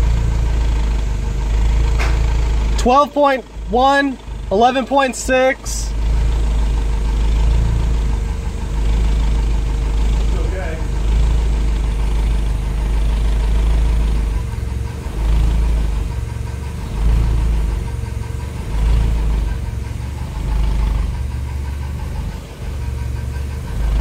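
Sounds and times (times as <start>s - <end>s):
car engine idling roughly: 0.0s - 24.0s
man talking: 2.8s - 6.0s, 10.3s - 11.0s.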